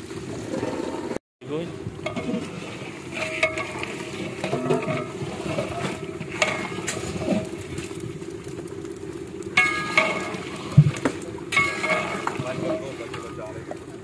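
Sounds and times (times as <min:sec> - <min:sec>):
low rattling drone: 0:01.6 - 0:13.9
metal ladle scraping a pot: 0:02.0 - 0:07.9, 0:09.6 - 0:13.6.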